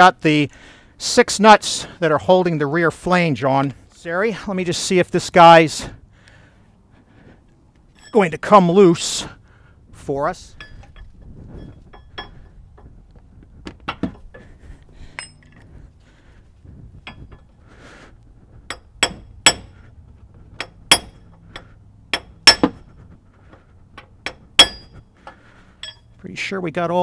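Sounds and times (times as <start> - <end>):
tool tapping on metal: 11.7 - 12.9, 18.7 - 19.8, 20.6 - 22.8, 23.9 - 26.1.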